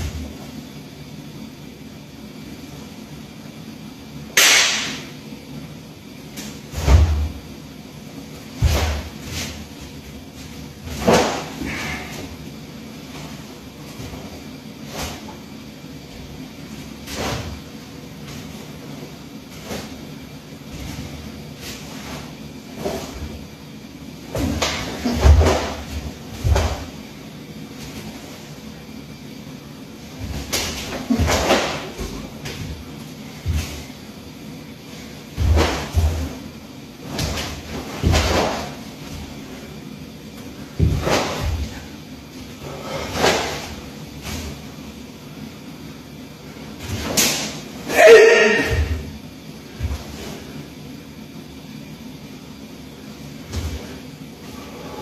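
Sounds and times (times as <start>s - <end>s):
heavy thuds: 8.5s - 12.4s, 24.3s - 27.1s, 30.0s - 34.1s, 34.8s - 39.8s, 40.4s - 44.7s
foot thud on wooden floor: 24.4s - 27.0s, 35.3s - 36.4s, 40.7s - 41.9s
bare feet stamping on wooden floor: 40.8s - 41.9s.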